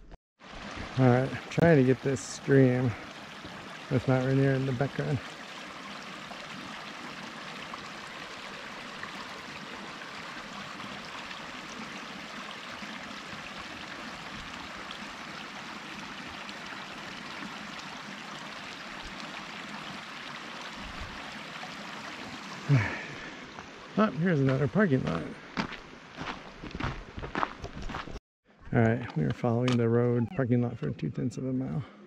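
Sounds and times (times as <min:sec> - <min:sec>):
stream water flowing: 0:00.4 - 0:28.0.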